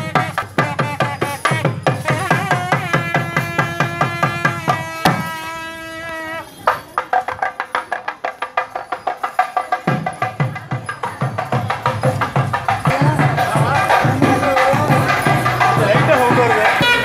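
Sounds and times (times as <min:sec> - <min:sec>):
drums beating fast rhythm: 0:00.0 - 0:05.4, 0:06.8 - 0:17.0
held melody line: 0:11.8 - 0:17.0.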